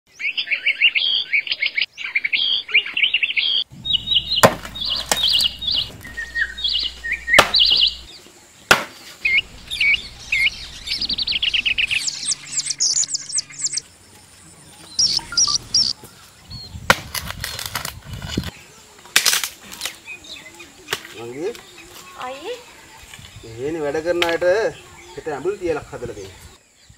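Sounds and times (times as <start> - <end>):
small birds chirping: 0.1 - 16.9, 19.8 - 26.9
rough scraping: 3.7 - 8.1
sharp knocks: 4.1 - 8.1.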